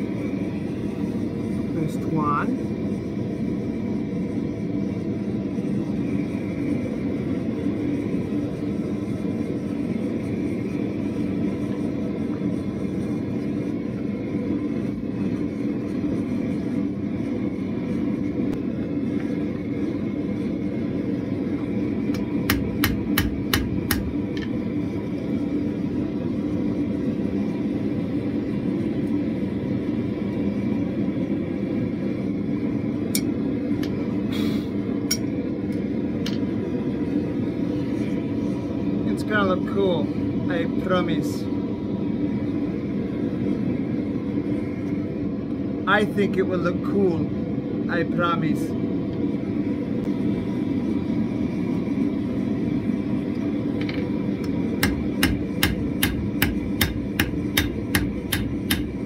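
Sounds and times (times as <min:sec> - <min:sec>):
gas forge burner roaring: 0:00.0 - 0:59.0.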